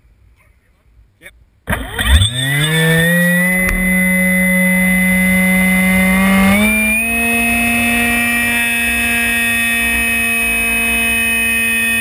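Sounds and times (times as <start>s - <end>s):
electric motor and propeller whine: 1.7s - 12.0s
short click: 3.6s - 3.9s.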